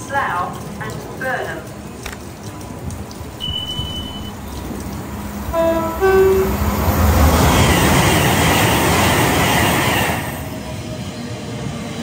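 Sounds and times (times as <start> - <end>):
two-tone train horn: 3.4 - 4.3, 5.5 - 6.8
electric train running past: 3.4 - 12.0.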